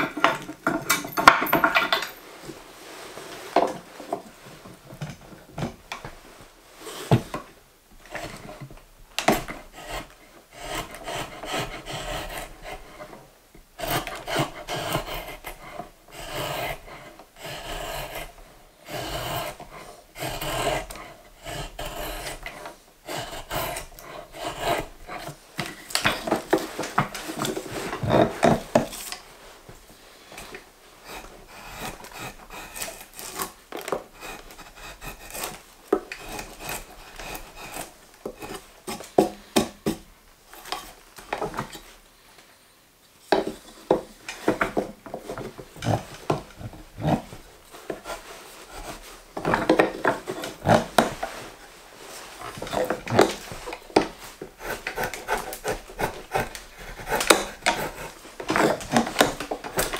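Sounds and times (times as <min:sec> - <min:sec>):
drawknife scraping wood: 0:09.2 - 0:13.2, 0:13.8 - 0:29.6, 0:30.2 - 0:41.8, 0:43.3 - 0:59.9.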